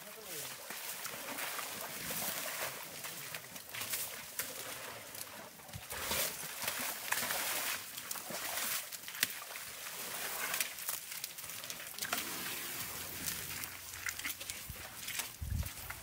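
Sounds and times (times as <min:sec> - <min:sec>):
elephant footsteps squelching in mud: 0:00.0 - 0:16.0.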